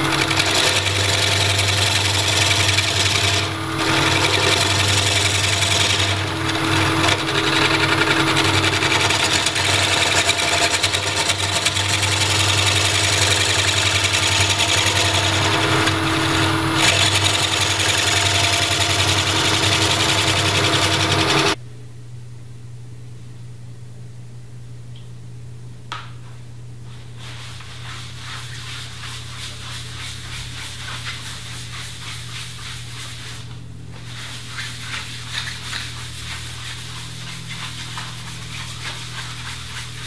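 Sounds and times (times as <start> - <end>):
gouge cutting spinning wood: 0.0 - 21.6
lathe motor hum: 0.0 - 21.6.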